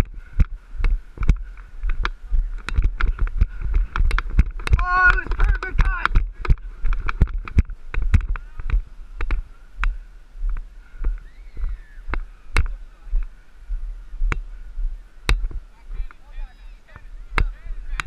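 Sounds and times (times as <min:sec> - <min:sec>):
jogging footsteps on grass: 0:00.0 - 0:18.0
wind rumble on microphone: 0:00.0 - 0:18.0
faint distant shouts: 0:10.9 - 0:13.5.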